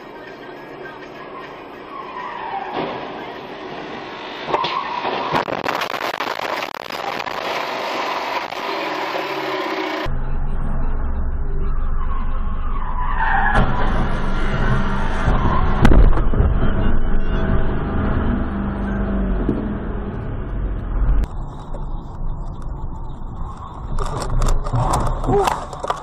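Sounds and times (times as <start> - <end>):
tyres skidding: 0.0 - 10.1
engine and road rumble: 0.0 - 26.0.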